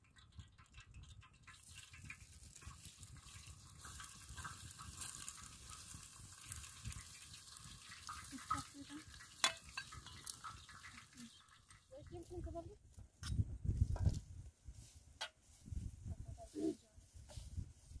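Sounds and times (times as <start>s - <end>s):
metal pots clinking: 0.0s - 12.4s.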